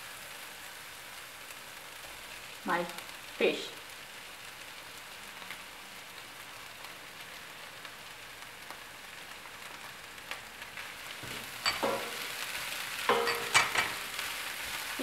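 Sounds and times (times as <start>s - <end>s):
food sizzling in a pan: 0.0s - 15.0s
spatula scraping a pan: 11.2s - 14.2s.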